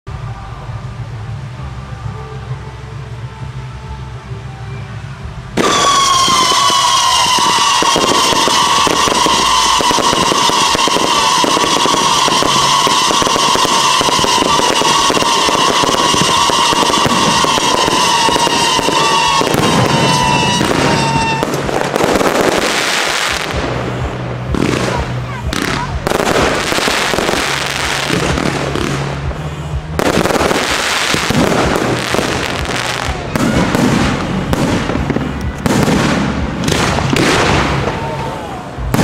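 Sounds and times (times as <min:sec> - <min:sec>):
fireworks crackling and popping: 0:05.5 - 0:39.0
long falling firework whistle: 0:05.6 - 0:23.7, 0:26.1 - 0:34.3
fireworks bursts: 0:05.6 - 0:39.0.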